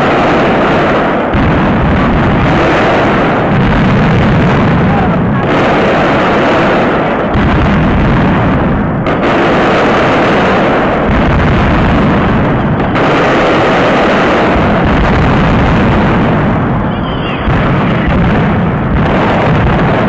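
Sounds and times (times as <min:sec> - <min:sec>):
rapid firecracker barrage: 0:00.0 - 0:20.0.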